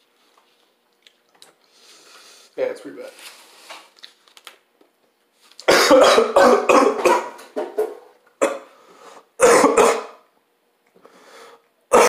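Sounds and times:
man coughing hard: 0:05.7 - 0:07.4, 0:08.4 - 0:08.7, 0:09.4 - 0:10.2.

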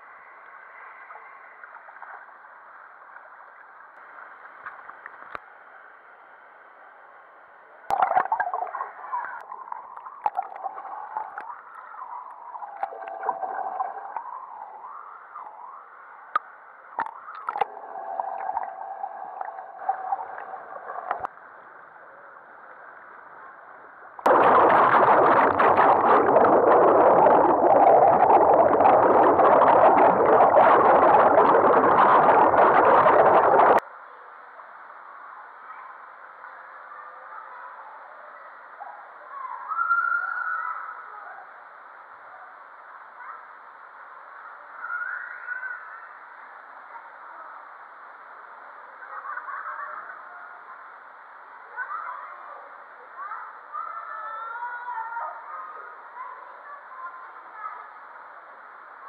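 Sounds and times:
muffled water gurgling and sloshing: 0:07.8 - 0:33.8
underwater churning water rush: 0:09.9 - 0:11.4, 0:12.4 - 0:14.8, 0:17.0 - 0:21.3, 0:24.3 - 0:33.8.

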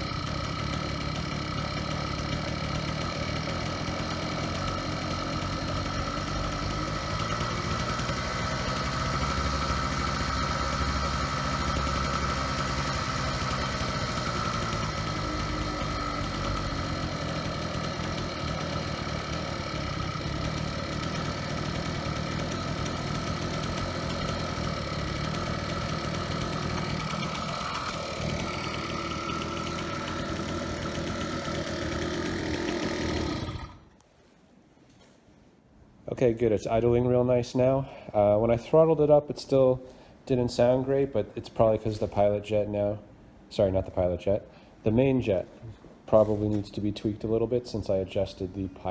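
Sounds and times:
small gas engine idling: 0:00.0 - 0:34.0.

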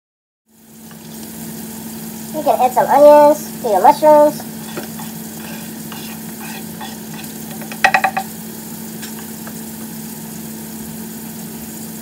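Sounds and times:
food sizzling in oil: 0:00.5 - 0:12.0.

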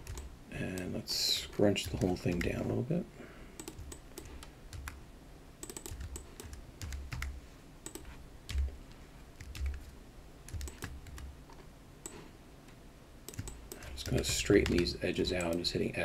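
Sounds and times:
keyboard and mouse clicking: 0:00.0 - 0:00.9, 0:01.8 - 0:02.6, 0:03.6 - 0:05.0, 0:05.6 - 0:09.9, 0:10.5 - 0:12.2, 0:13.3 - 0:15.7.

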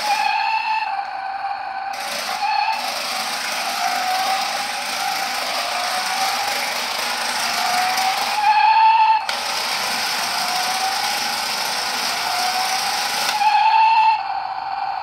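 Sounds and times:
toy car motor whining: 0:00.0 - 0:14.3.

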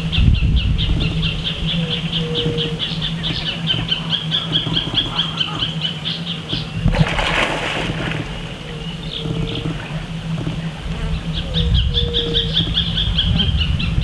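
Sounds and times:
loud water splash: 0:06.8 - 0:08.9.

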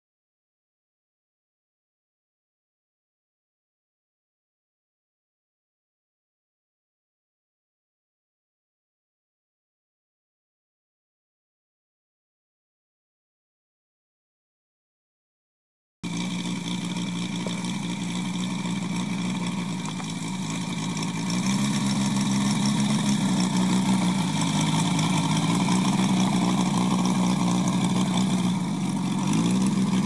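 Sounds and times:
model airplane engine running: 0:16.1 - 0:30.0.

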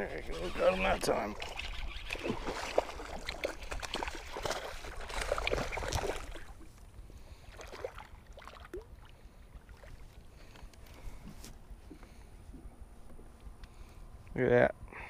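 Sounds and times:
fish thrashing and splashing: 0:00.6 - 0:06.7
small splashes and knocks: 0:01.4 - 0:06.8.

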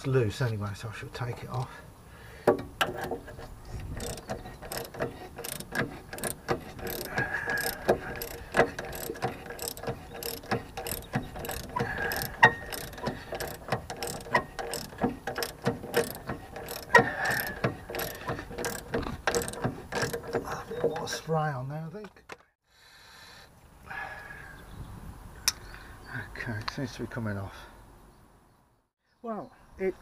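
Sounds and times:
socket ratchet clicking: 0:03.8 - 0:20.4.

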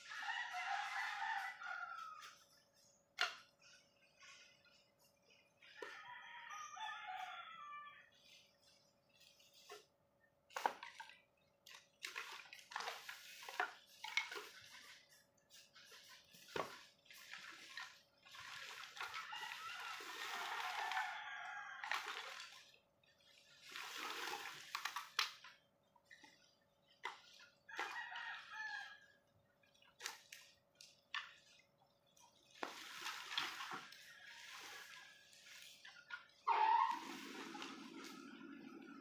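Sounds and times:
wooden sticks clattering: 0:10.5 - 0:19.4
plastic sacks rustling and dragging: 0:23.2 - 0:25.2, 0:32.4 - 0:39.0.

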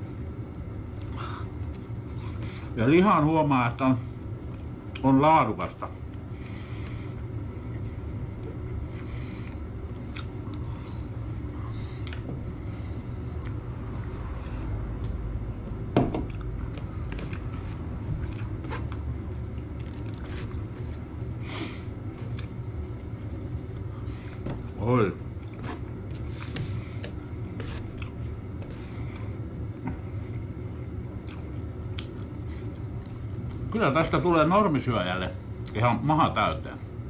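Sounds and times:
steady low hum: 0:00.0 - 0:37.0
chewing: 0:09.4 - 0:10.9, 0:16.3 - 0:20.6, 0:27.8 - 0:28.2, 0:31.2 - 0:33.7.

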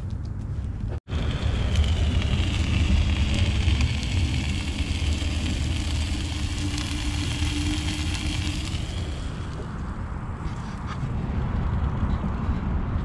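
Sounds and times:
boat engine rumbling: 0:01.1 - 0:10.4.

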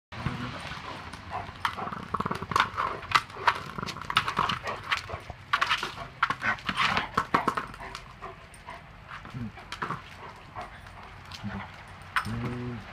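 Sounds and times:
ball knocking on concrete: 0:01.6 - 0:08.2, 0:09.1 - 0:10.2.

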